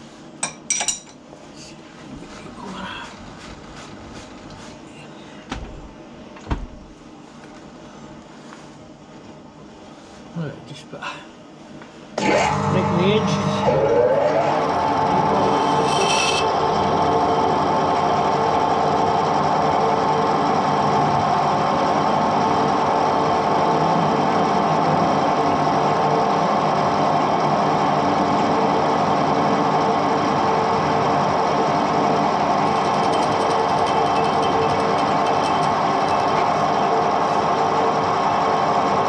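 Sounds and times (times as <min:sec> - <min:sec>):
metal lathe humming: 0:12.2 - 0:26.1, 0:29.5 - 0:39.0.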